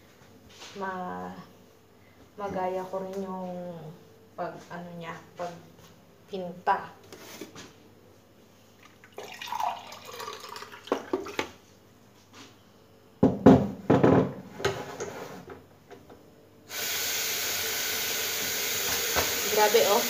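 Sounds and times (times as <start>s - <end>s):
water pouring into a mug: 8.8s - 11.5s.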